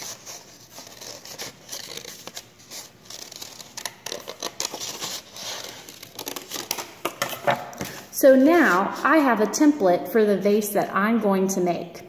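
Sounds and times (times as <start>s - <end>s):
scissors snipping paper: 0.0s - 6.9s.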